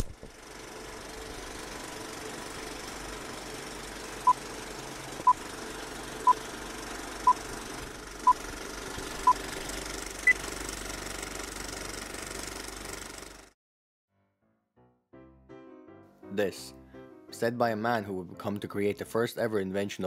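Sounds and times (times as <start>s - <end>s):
film projector clatter: 0.0s - 13.5s.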